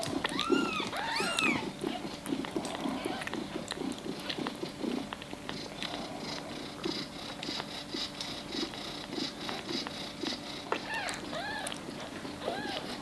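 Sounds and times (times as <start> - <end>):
kitten sucking and swallowing: 0.0 - 12.9
kitten mewing: 0.2 - 3.4, 10.7 - 13.0.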